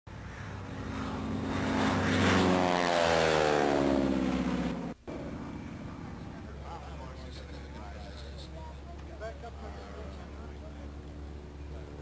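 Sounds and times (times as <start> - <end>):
engine passing by: 0.1 - 7.9.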